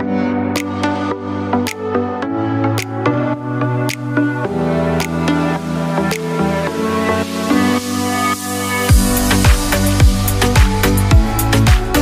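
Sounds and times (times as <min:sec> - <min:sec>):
held synth chords: 0:00.0 - 0:12.0
crisp high percussion: 0:08.7 - 0:12.0
deep kick drum: 0:08.9 - 0:12.0.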